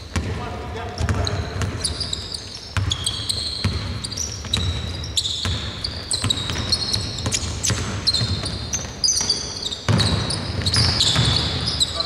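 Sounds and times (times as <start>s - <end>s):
sneaker squeaks on floor: 0.9s - 12.0s
basketball bouncing on hardwood: 3.6s - 11.7s.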